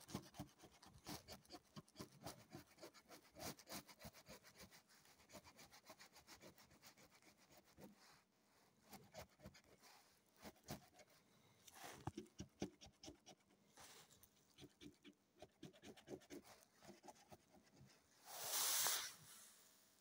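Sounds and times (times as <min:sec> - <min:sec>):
breathy puff: 0:18.3 - 0:19.5.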